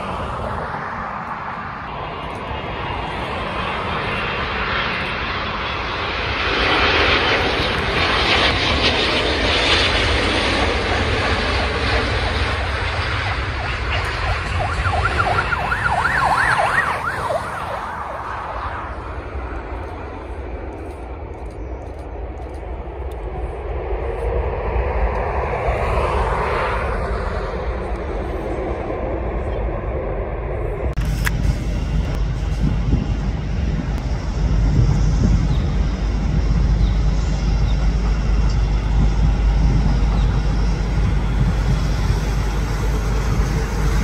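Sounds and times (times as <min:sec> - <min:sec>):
jet engines roaring: 0:00.0 - 0:44.0
siren wailing: 0:12.5 - 0:19.2.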